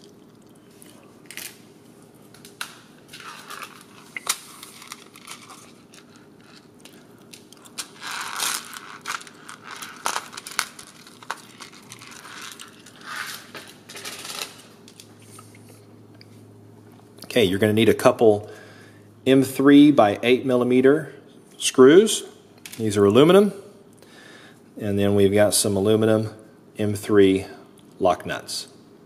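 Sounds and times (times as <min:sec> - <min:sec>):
crinkling and rustling: 0:02.2 - 0:15.6.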